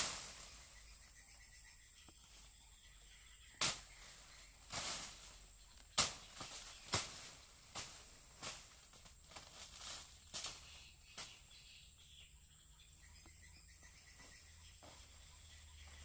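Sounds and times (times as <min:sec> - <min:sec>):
blade chopping into banana trunk: 0:03.6 - 0:03.9, 0:06.0 - 0:08.7.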